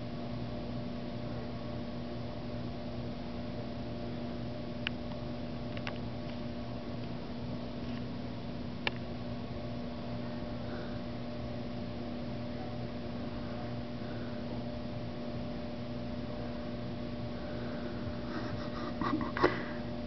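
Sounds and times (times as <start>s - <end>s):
electrical hum and hiss: 0.0s - 20.0s.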